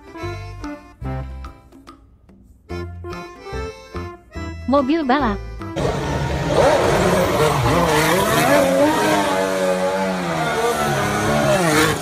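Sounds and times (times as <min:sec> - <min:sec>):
racing car engine revving: 0:05.8 - 0:12.0.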